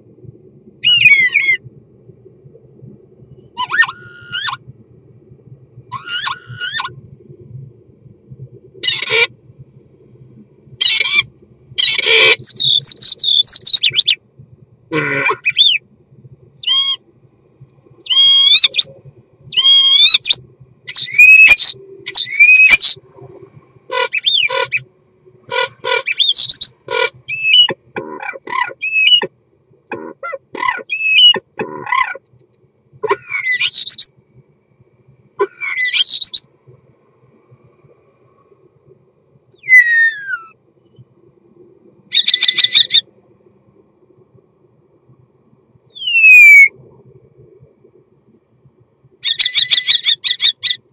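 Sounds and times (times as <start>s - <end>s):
starling singing: 8.8s - 9.3s, 11.8s - 14.2s, 15.0s - 15.8s, 16.6s - 17.0s, 18.0s - 18.9s, 19.5s - 23.0s, 23.9s - 24.8s, 25.5s - 29.3s, 39.6s - 40.5s, 42.1s - 43.0s, 49.2s - 50.8s.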